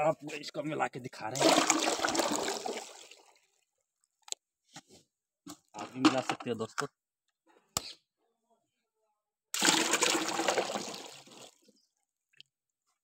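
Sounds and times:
liquid splashing pour into bucket: 1.3s - 3.4s, 9.6s - 11.7s.

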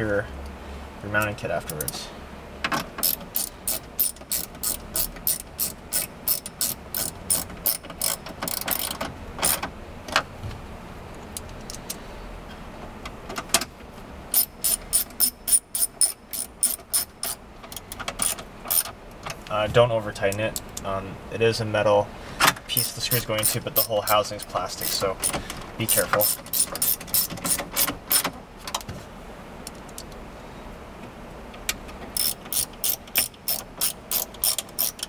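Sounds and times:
ratcheting screwdriver clicking: 3.0s - 9.6s, 14.3s - 18.9s, 22.8s - 28.3s, 32.2s - 35.0s.

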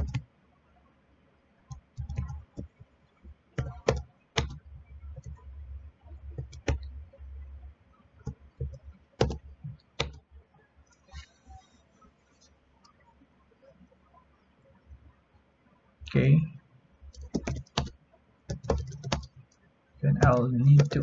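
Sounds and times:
keyboard key clicks: 3.6s - 4.6s, 6.4s - 6.9s, 10.0s - 10.2s, 17.2s - 17.9s, 18.5s - 19.3s, 20.1s - 21.0s.

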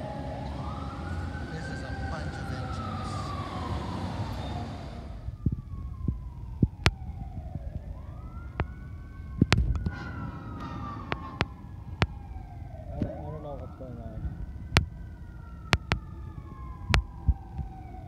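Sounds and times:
emergency siren wailing: 0.0s - 18.0s
low rumble: 4.3s - 17.8s.

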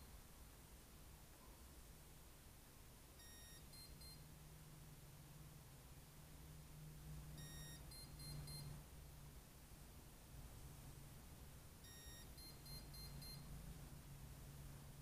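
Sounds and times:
faint low hum: 0.0s - 15.0s
motor controller beeping: 7.4s - 8.7s, 11.8s - 13.5s.

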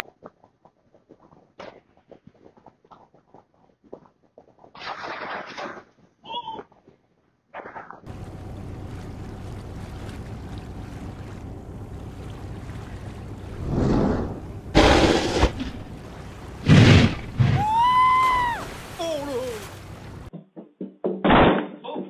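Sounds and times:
boat engine rumble: 8.1s - 20.3s
fish splashing and thrashing: 8.1s - 20.3s
high rising and falling cry: 17.4s - 19.6s.

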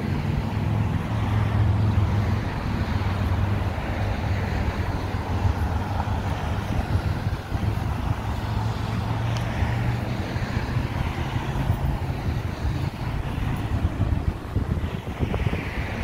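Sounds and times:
road traffic rumble: 0.0s - 16.0s
vehicle engine hum: 0.0s - 16.0s.

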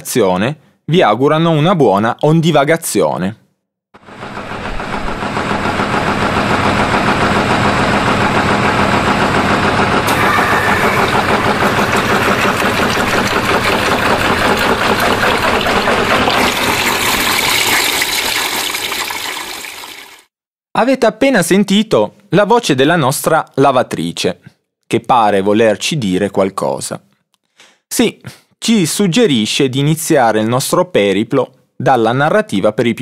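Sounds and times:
washing machine running: 4.0s - 20.2s.

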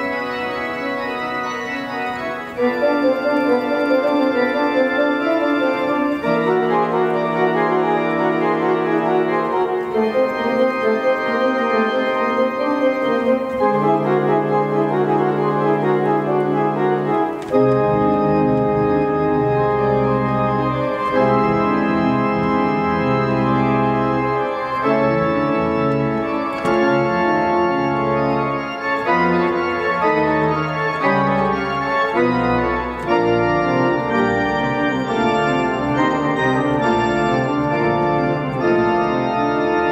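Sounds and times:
deep organ pedal bass: 0.0s - 39.9s
organ chords: 0.0s - 39.9s.

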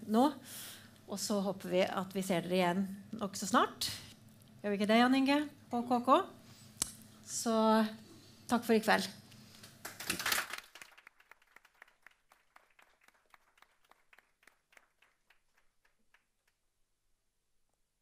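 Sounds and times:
audience applauding: 9.8s - 16.5s.

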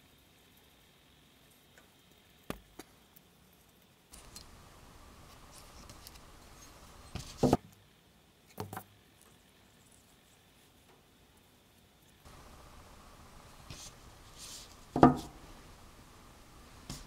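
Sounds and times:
soft handling rustle: 11.7s - 17.0s.

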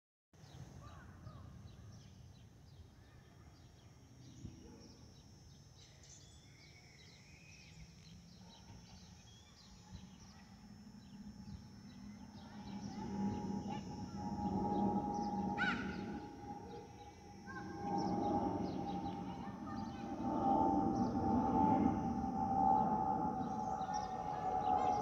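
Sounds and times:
small birds chirping: 0.4s - 25.0s
distant jet engine rumble: 10.7s - 25.0s
aircraft whistle: 12.4s - 25.0s.

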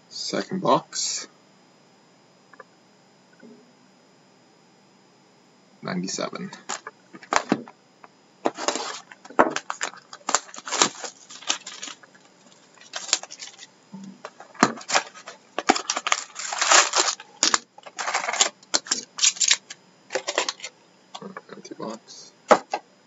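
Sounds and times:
card packs clicking and rustling: 6.6s - 7.7s, 8.4s - 21.3s
cardboard box tearing: 8.5s - 12.0s, 14.6s - 19.5s.

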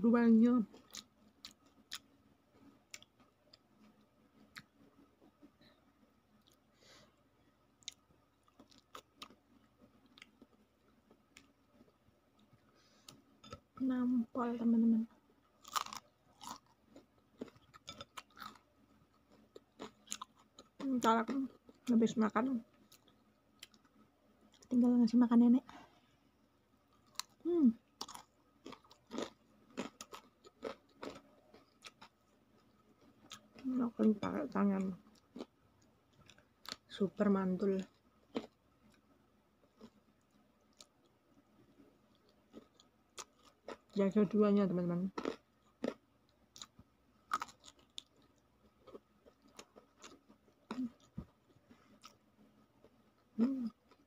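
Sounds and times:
person chewing crunchy food: 0.7s - 5.4s, 7.8s - 13.2s, 15.6s - 20.9s, 22.8s - 23.9s, 26.9s - 34.2s, 35.0s - 36.9s, 37.8s - 41.2s, 42.0s - 44.0s, 45.2s - 54.0s
person humming: 53.4s - 53.7s.

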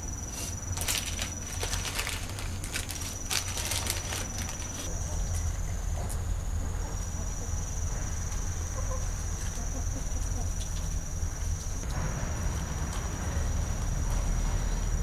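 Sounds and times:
insect trill: 0.0s - 15.0s
clicks and rustles: 0.8s - 4.9s.

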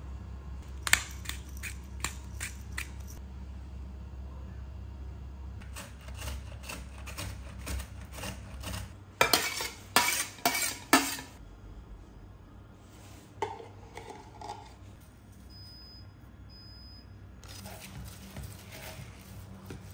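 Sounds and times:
dishes and utensils clattering: 7.1s - 11.4s, 13.4s - 14.8s.

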